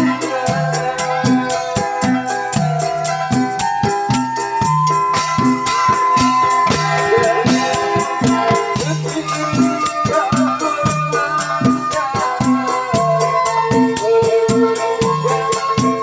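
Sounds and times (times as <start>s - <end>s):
metallophones ringing: 0.0s - 16.0s
hanging gongs humming: 5.1s - 11.3s.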